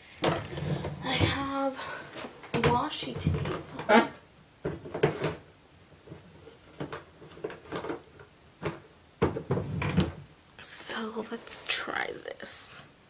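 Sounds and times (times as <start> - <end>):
craft supplies knocking and rustling: 4.6 - 10.2.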